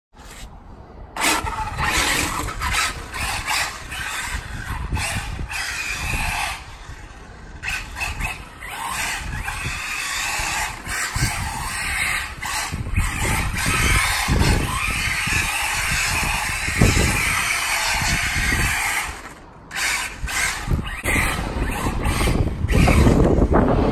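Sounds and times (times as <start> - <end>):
electric motor whining: 1.2 - 23.6
low rumble: 21.1 - 23.9.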